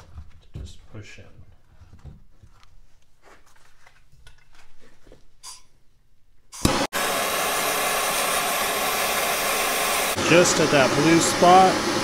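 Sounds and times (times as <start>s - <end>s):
faint handling sounds: 0.0s - 5.8s
gas torch igniting and hissing: 6.6s - 12.0s.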